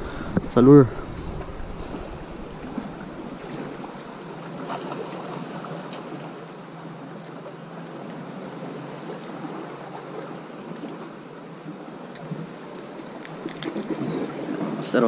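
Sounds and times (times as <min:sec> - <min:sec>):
wind buffeting microphone: 0:00.0 - 0:05.6
waves washing on rocky shore: 0:00.0 - 0:15.0.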